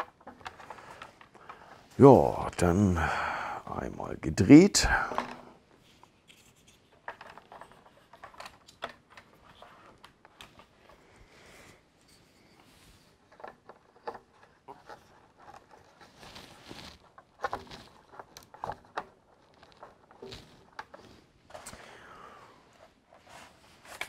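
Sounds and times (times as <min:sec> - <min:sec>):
plastic parts clicking and tapping: 0:00.0 - 0:01.9, 0:06.2 - 0:11.0, 0:13.2 - 0:21.8.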